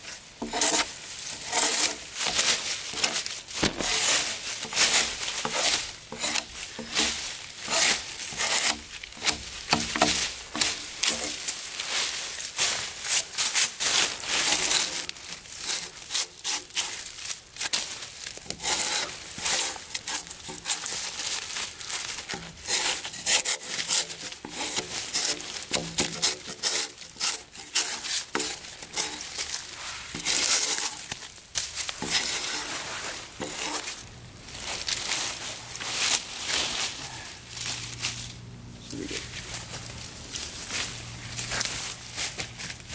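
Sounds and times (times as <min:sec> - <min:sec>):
drawknife scraping bark: 0:00.4 - 0:11.4, 0:18.5 - 0:21.1, 0:22.3 - 0:31.2, 0:31.9 - 0:34.0.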